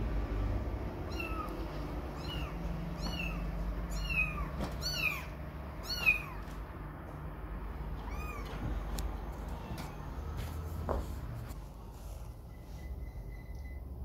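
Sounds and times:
kitten meowing: 1.1s - 6.6s, 8.0s - 8.8s.

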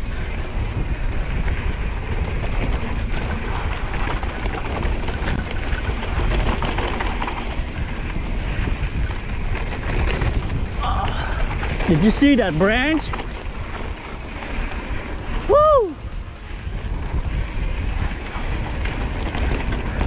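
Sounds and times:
bike rattling: 0.0s - 20.0s
tyres rumbling on dirt: 0.0s - 20.0s
wind buffeting microphone: 0.0s - 20.0s.

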